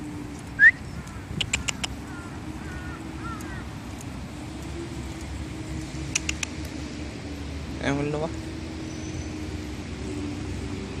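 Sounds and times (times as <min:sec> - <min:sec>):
birds chirping: 0:00.0 - 0:11.0
sharp clicks: 0:00.4 - 0:02.0, 0:06.1 - 0:06.8.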